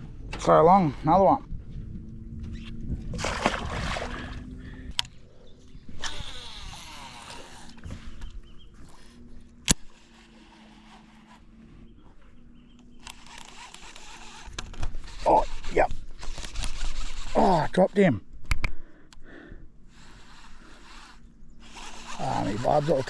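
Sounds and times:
steady low hum: 0:00.0 - 0:23.0
fish splashing in water: 0:03.2 - 0:04.4
fishing reel spool whirring: 0:04.3 - 0:17.8, 0:19.8 - 0:23.0
fishing reel winding: 0:06.0 - 0:07.8, 0:13.0 - 0:17.6, 0:20.0 - 0:23.0.

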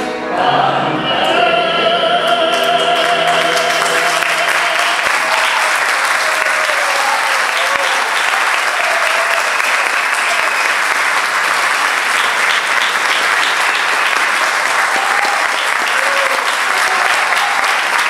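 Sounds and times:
audience applauding: 0:02.3 - 0:18.0
short calls from audience: 0:12.1 - 0:18.0.

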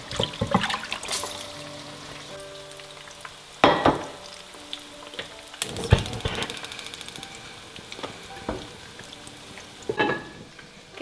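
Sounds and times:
oil sizzling in frying pan: 0:00.0 - 0:11.0
gas hob igniter clicking: 0:05.6 - 0:08.8.

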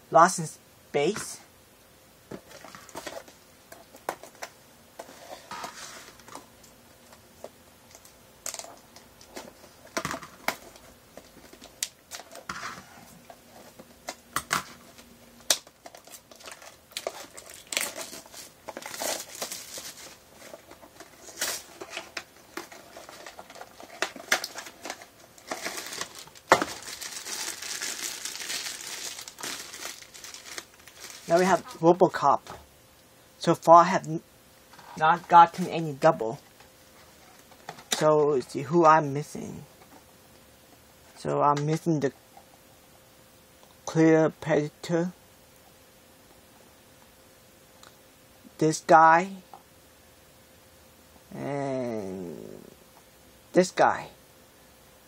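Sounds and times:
packaging crinkling and tearing: 0:14.0 - 0:31.8.

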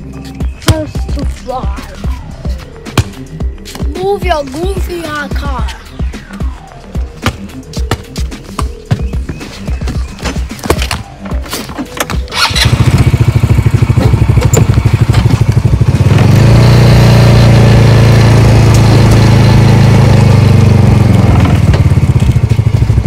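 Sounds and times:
utility vehicle engine idling: 0:12.0 - 0:23.0.

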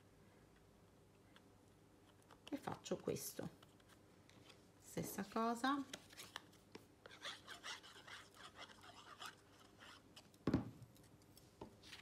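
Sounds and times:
card being handled: 0:05.8 - 0:06.6
glue bottle nozzle rubbing paper: 0:07.1 - 0:10.0.

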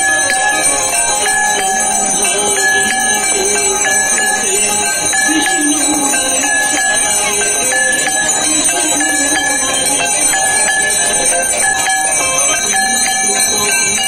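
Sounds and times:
bells ringing in steady rhythm: 0:00.0 - 0:14.0
voices singing: 0:00.0 - 0:14.0.

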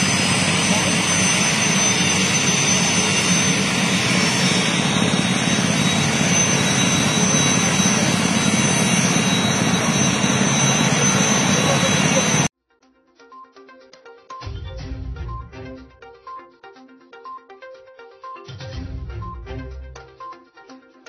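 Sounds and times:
helicopter turbine engine running: 0:00.0 - 0:12.5.

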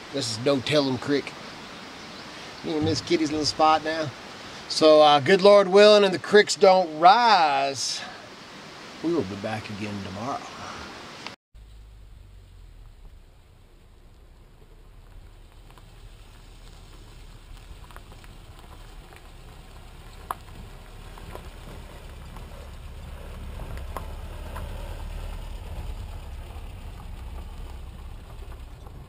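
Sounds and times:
truck driving on dirt road: 0:02.0 - 0:05.1, 0:11.6 - 0:29.0.

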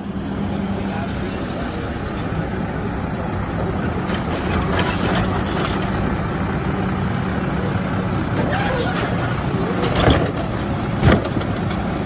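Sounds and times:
diesel engine running: 0:00.0 - 0:12.0
hydraulic arm lifting cart: 0:03.6 - 0:06.5, 0:08.3 - 0:12.0
cart contents clattering: 0:08.5 - 0:11.9.

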